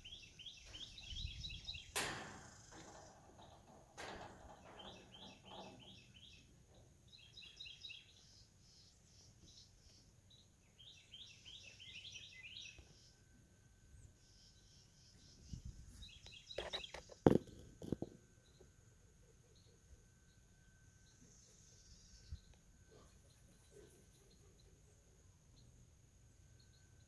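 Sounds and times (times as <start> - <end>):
songbird chirping: 0.0 - 17.3, 18.0 - 27.0
knocks: 1.9 - 6.0.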